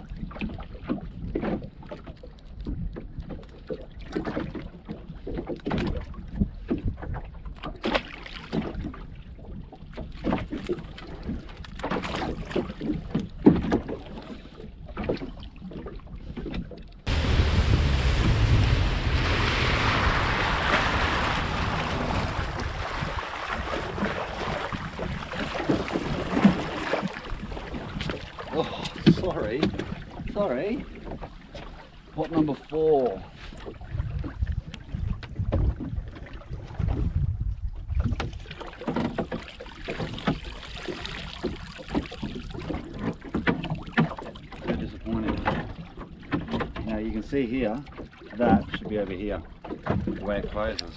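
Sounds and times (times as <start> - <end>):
water sloshing: 0.1 - 37.1, 37.8 - 50.9
boat engine rumble: 8.9 - 50.9
wind on microphone: 17.1 - 30.0, 33.5 - 39.3
water splashing off mesh: 17.1 - 30.1, 39.1 - 44.2.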